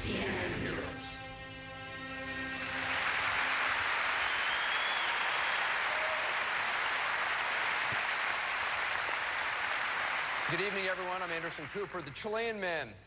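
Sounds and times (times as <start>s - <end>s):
held music chord: 0.0s - 3.0s
large audience applauding: 2.6s - 12.5s.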